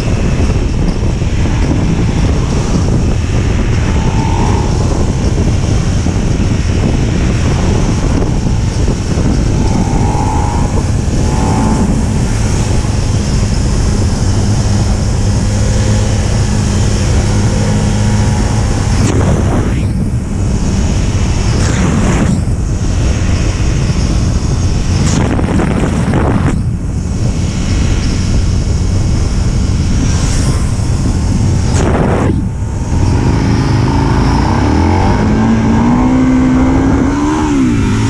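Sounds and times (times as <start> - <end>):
heavy wind noise: 0.0 - 38.0
motorcycle engine pulling hard: 0.0 - 38.0.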